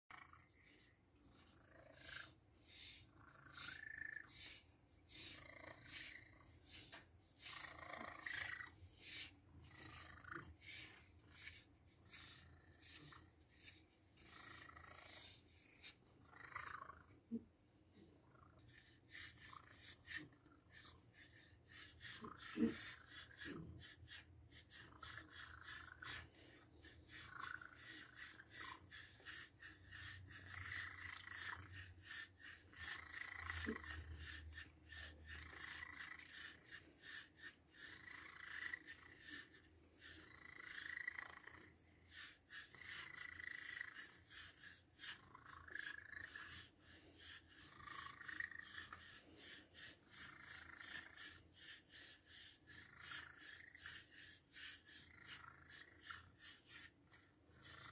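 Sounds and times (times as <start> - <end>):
stick scratching through fur: 0.5 - 17.4, 18.6 - 57.9
cat moaning: 20.7 - 26.3.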